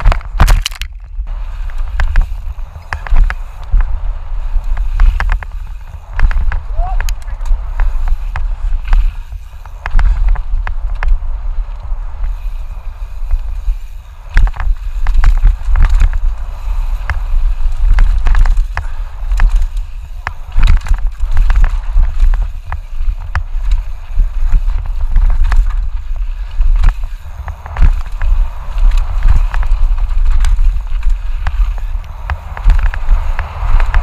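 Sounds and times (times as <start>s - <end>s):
bike knocking and rattling: 0.0s - 34.0s
wind and trail rumble: 0.0s - 34.0s.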